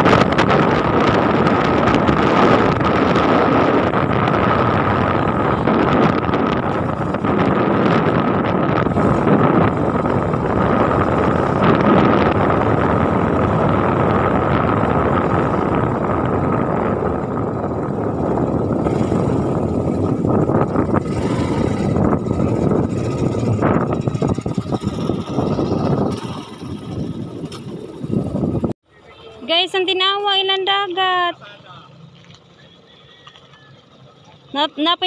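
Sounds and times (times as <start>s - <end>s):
wind buffeting microphone: 0.0s - 28.8s
vehicle engine running: 0.0s - 35.0s.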